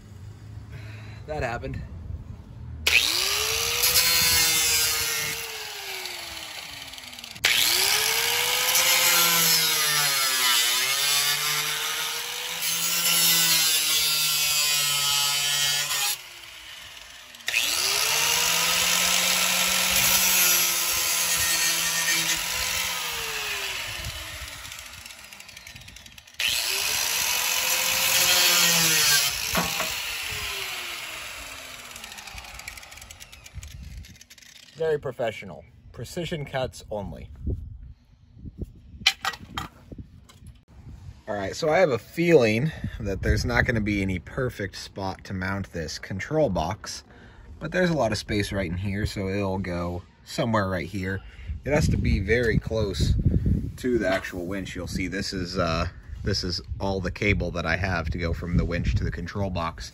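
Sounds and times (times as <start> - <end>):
angle grinder cutting plastic: 2.8 - 34.8.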